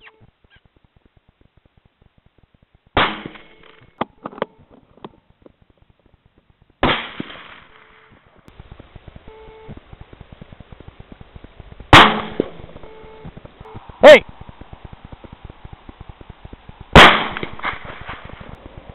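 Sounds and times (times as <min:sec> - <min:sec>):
rifle shots: 0:03.0 - 0:04.0, 0:06.8 - 0:08.0, 0:11.8 - 0:13.6, 0:14.8 - 0:18.9.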